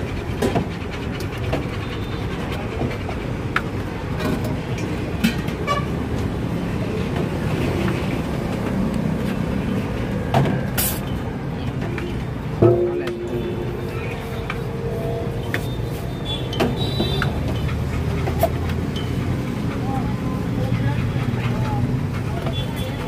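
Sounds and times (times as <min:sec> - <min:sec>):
street traffic noise: 0:00.0 - 0:23.0.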